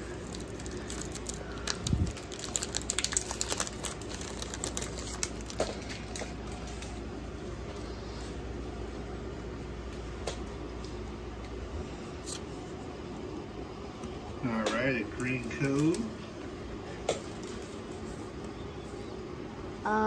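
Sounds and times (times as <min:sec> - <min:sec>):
foil wrapper crinkling: 0:00.0 - 0:06.9, 0:15.3 - 0:16.1.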